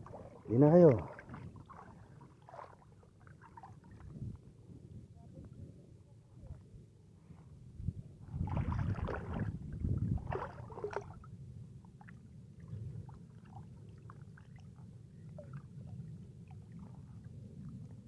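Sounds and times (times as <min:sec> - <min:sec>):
water rumbling against boat: 0:00.0 - 0:05.8, 0:07.8 - 0:18.0
fish splashing and thrashing: 0:10.2 - 0:11.2.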